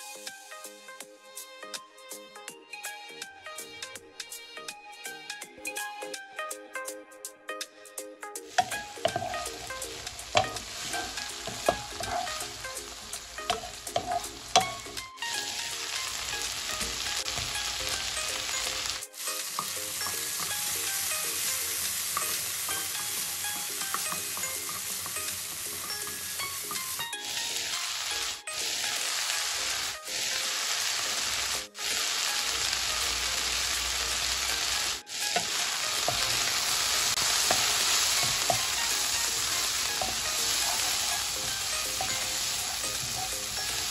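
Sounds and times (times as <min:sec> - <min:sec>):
spatula tapping and scraping pan: 0:08.5 - 0:27.4, 0:35.2 - 0:43.9
vegetables sizzling in a pan: 0:08.5 - 0:43.9.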